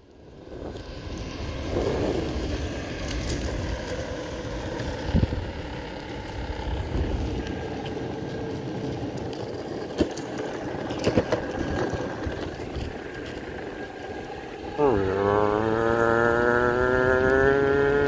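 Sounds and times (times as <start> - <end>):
skateboard wheels rumbling on asphalt: 0.0 - 18.0
wind on microphone: 0.4 - 3.9, 4.9 - 5.8.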